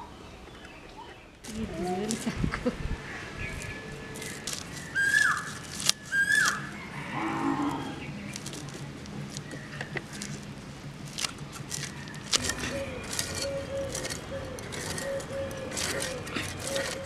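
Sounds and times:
fish scales being scraped: 0:03.6 - 0:06.7, 0:11.0 - 0:17.0
high animal calls: 0:04.2 - 0:08.1, 0:12.3 - 0:17.0.

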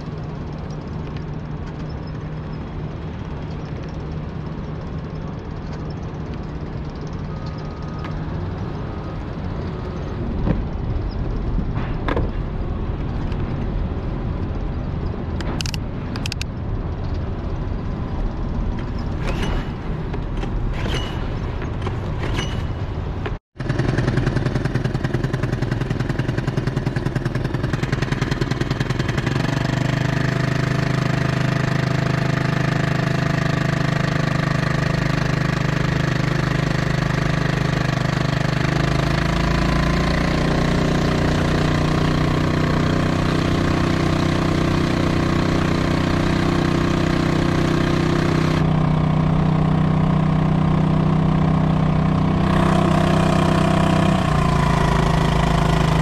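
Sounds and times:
outboard motor running: 0:23.1 - 0:56.0.

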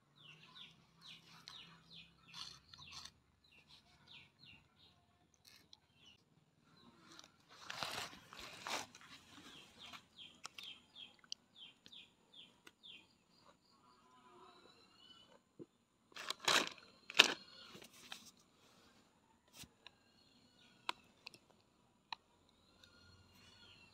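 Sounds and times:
small bird chirping: 0:00.1 - 0:15.4, 0:16.8 - 0:18.3, 0:22.3 - 0:23.9
plastic snack packet crinkling: 0:07.1 - 0:09.2, 0:16.1 - 0:17.4.

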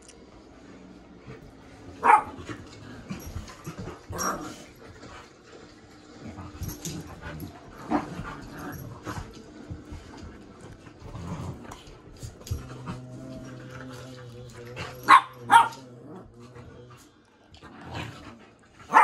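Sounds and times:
dogs scuffling: 0:01.2 - 0:16.4
dog barking: 0:02.0 - 0:02.4, 0:15.1 - 0:15.8.

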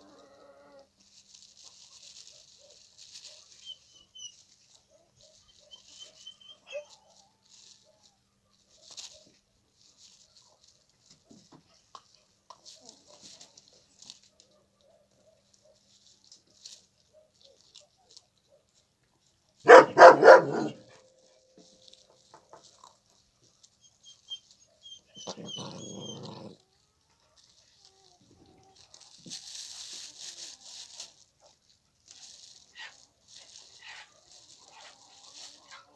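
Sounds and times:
puppy barking: 0:19.6 - 0:21.1.

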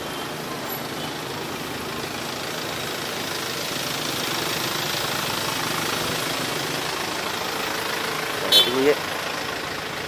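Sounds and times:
motorcycle engine ticking over: 0:00.0 - 0:10.0.

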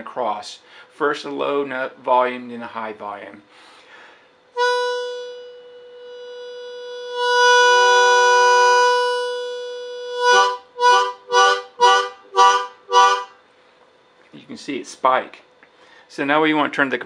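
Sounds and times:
harmonica playing: 0:04.6 - 0:13.4.

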